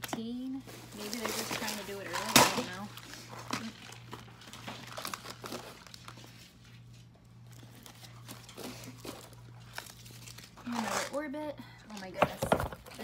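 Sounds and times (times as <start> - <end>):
low steady hum: 0.0 - 13.0
plastic bag rustling: 0.5 - 11.3.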